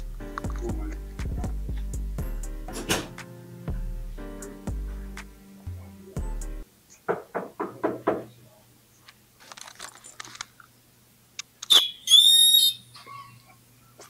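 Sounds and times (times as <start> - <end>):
knuckles knocking on door: 7.1 - 8.3.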